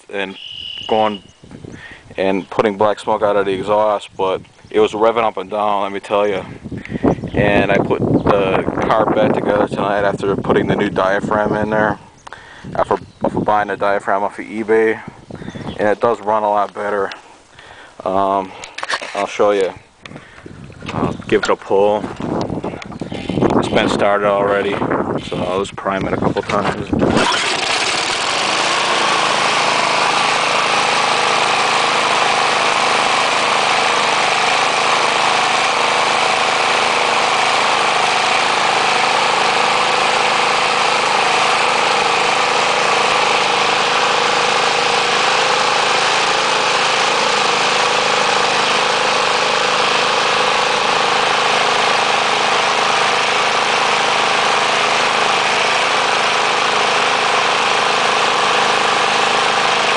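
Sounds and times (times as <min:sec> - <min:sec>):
lawn mower engine running: 0:00.0 - 0:12.9, 0:13.6 - 0:59.9.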